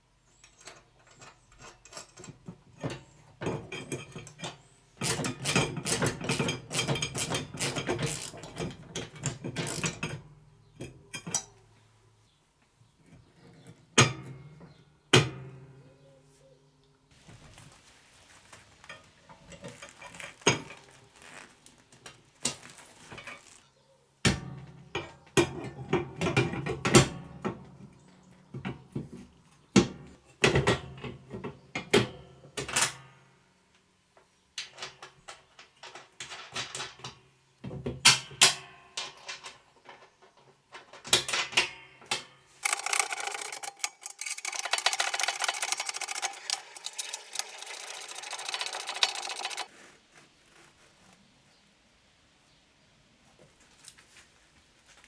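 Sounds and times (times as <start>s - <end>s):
ratchet wrench clicking: 42.6s - 49.7s
steel parts clinking: 42.6s - 49.7s.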